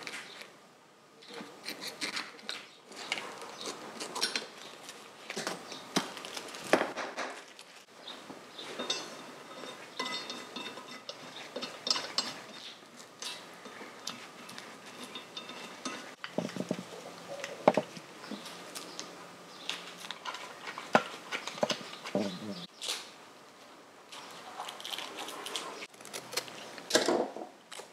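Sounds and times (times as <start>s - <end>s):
metal rings: 8.6s - 13.8s, 14.8s - 16.8s.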